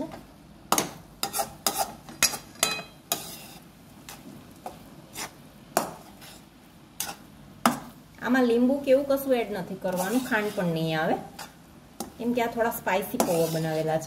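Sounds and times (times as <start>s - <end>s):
metal spatula scraping metal pan: 1.2s - 3.6s, 6.1s - 6.4s, 9.9s - 11.6s, 13.1s - 14.0s.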